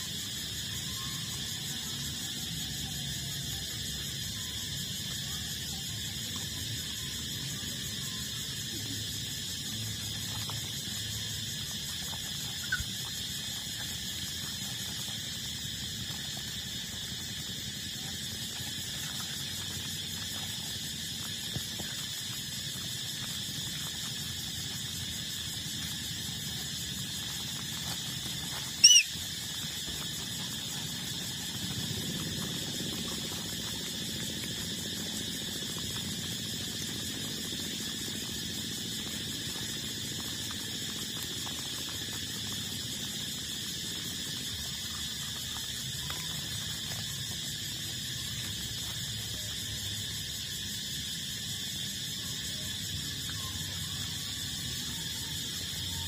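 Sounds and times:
puppy squealing: 0:28.8 - 0:29.1.

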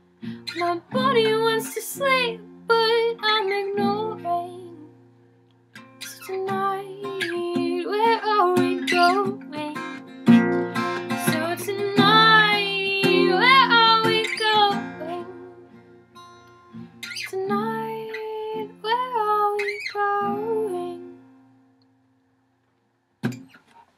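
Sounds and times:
woman singing: 0:00.4 - 0:05.0, 0:06.1 - 0:10.0, 0:11.1 - 0:15.7, 0:17.2 - 0:21.2
acoustic guitar strumming: 0:05.7 - 0:18.8.

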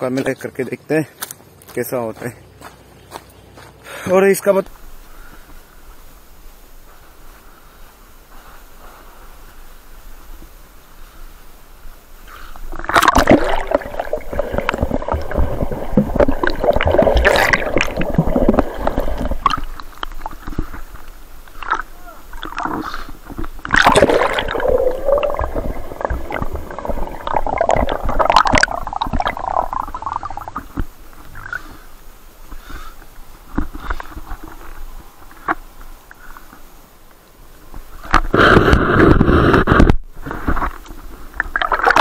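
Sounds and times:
water splashing and gurgling: 0:12.6 - 0:31.9, 0:38.0 - 0:42.0.

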